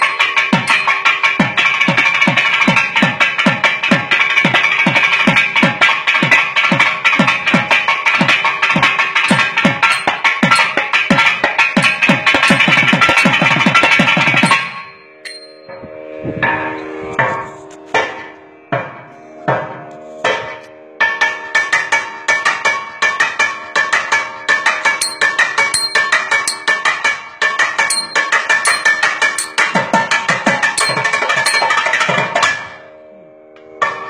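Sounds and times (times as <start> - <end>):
fast drum strokes: 0.0 - 14.8, 27.9 - 31.8.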